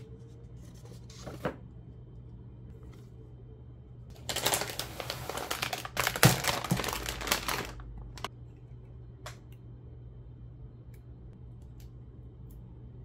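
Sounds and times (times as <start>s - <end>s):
plastic packaging crinkling: 4.1s - 8.3s.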